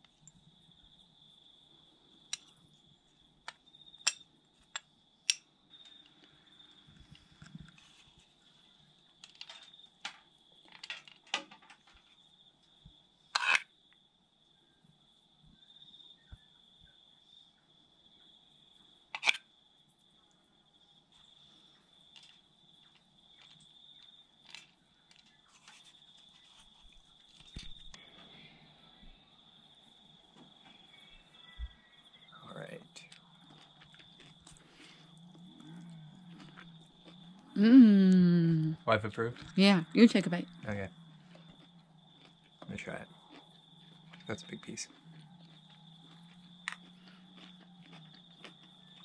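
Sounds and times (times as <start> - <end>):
high-pitched insect trill: 11.9 - 49.0.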